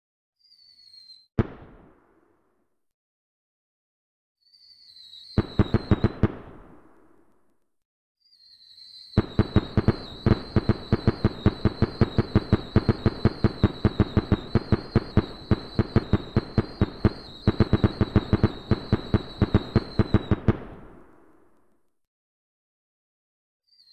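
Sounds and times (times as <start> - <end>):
firework bangs: 1.4 - 2.2, 5.4 - 7.2, 9.2 - 21.5
high firework whistle: 4.4 - 6.3, 9.2 - 21.1.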